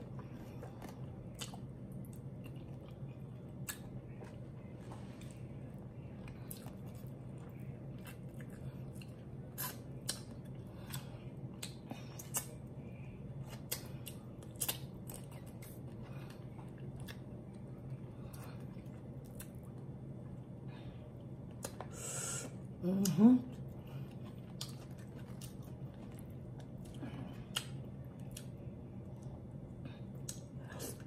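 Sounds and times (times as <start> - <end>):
steady low hum: 0.0 - 31.0
wet chewing clicks and smacks: 0.6 - 4.4, 6.2 - 12.6, 13.4 - 20.4, 21.4 - 21.9, 24.0 - 29.4.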